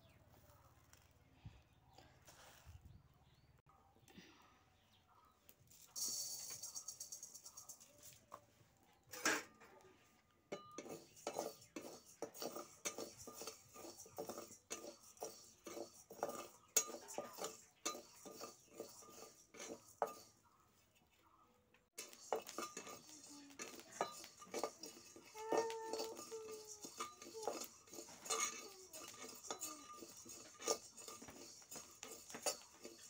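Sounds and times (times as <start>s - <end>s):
metal spatula scraping iron pan: 9.1s - 9.7s, 10.5s - 20.5s, 22.0s - 33.0s.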